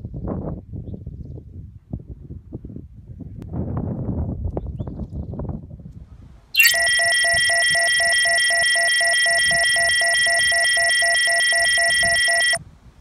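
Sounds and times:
low pulsing beep: 6.6 - 12.6
steady high electronic tone: 6.6 - 12.6.

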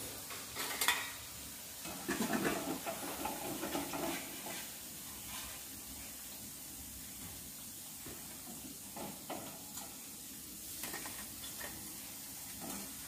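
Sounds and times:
oil sizzling: 0.0 - 13.0.

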